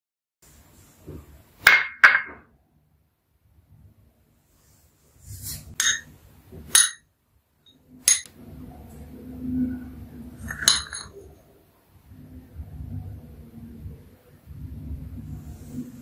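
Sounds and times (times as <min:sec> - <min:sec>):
spoon clinking against glass bowl: 0:08.1 - 0:08.3, 0:10.4 - 0:11.2.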